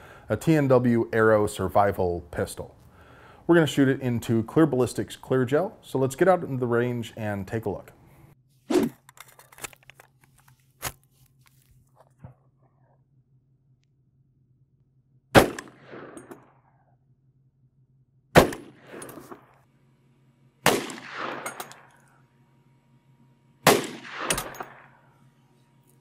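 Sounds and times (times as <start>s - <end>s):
gunshots: 15.3s - 16.6s, 18.4s - 19.5s, 20.6s - 21.9s, 23.6s - 25.0s
gunshot echo: 15.3s - 16.8s, 18.3s - 19.5s, 20.6s - 21.9s, 23.7s - 25.0s.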